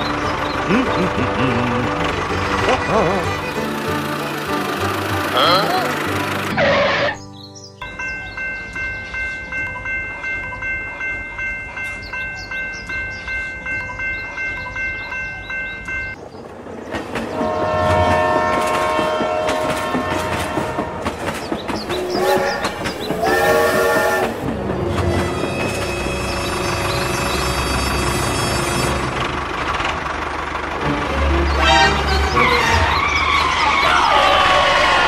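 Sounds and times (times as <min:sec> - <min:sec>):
toy warning bell ringing: 0:07.8 - 0:16.2
toy train horn and whistle: 0:17.4 - 0:21.0, 0:22.0 - 0:24.4, 0:31.5 - 0:33.0.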